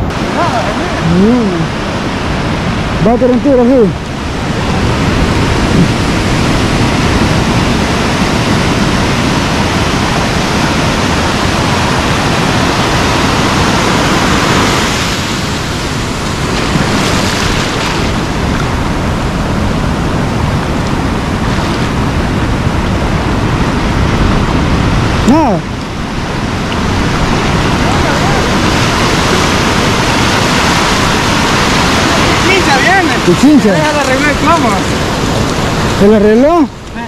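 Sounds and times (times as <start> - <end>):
ocean surf breaking: 0.0 - 37.0.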